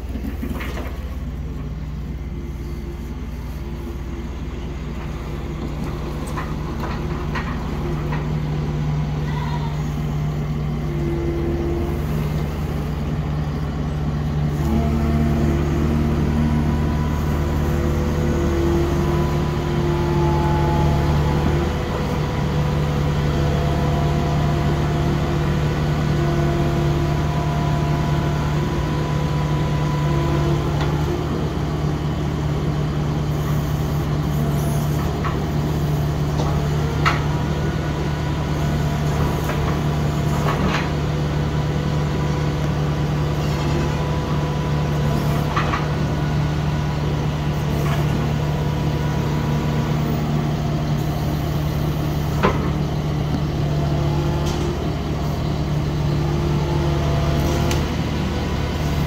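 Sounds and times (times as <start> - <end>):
diesel engine droning: 0.0 - 59.0.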